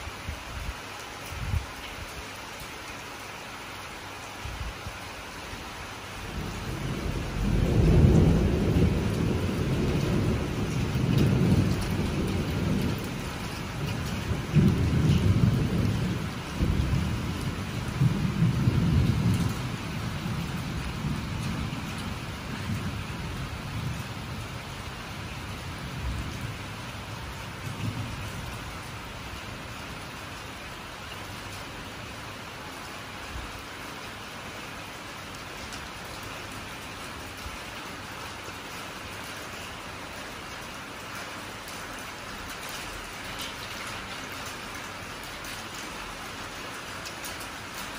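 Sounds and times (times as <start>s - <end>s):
steady rain: 0.0s - 47.9s
thunder rumbling: 6.2s - 30.0s.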